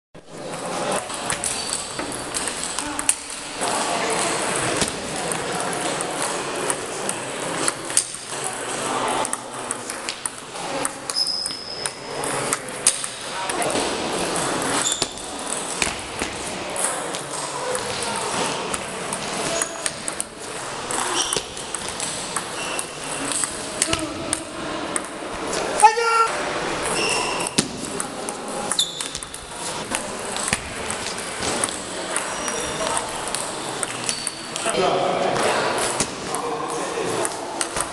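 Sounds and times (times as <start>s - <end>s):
clicks from other tables: 0.4s - 8.5s, 9.2s - 25.8s, 26.8s - 34.8s, 35.8s - 37.9s
table tennis ball clicking: 9.2s - 13.6s, 14.8s - 25.3s, 26.8s - 34.8s
short high squeaks: 11.1s - 12.1s, 14.7s - 15.3s, 21.0s - 21.6s, 22.5s - 23.2s, 26.9s - 27.6s, 28.7s - 29.3s, 32.2s - 32.8s, 34.0s - 34.6s.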